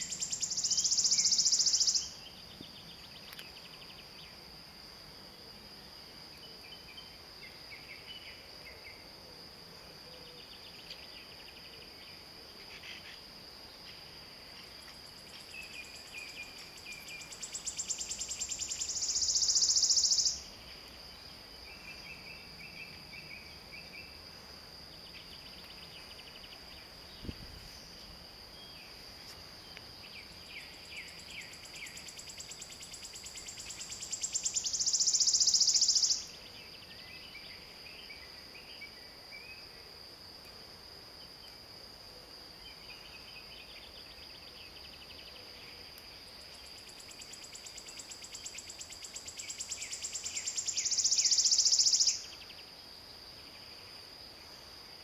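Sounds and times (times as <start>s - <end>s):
bird singing trill: 0.0s - 4.4s, 15.3s - 20.5s, 30.0s - 39.6s, 49.2s - 52.7s.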